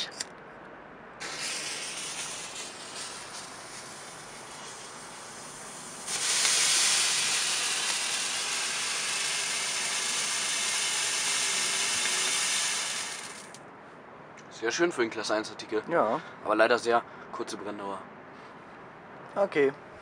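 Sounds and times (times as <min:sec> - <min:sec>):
firework fountain hissing sparks: 0:01.2 - 0:13.6.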